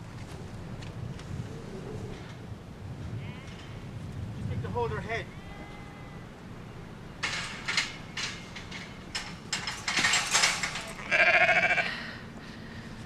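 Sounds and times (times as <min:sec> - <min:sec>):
metal gate rattling and clanking: 0:07.1 - 0:11.7
sheep bleating: 0:10.9 - 0:11.9.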